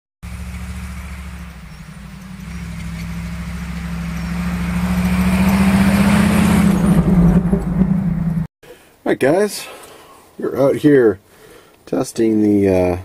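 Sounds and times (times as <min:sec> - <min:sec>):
car engine running: 0:00.2 - 0:08.5.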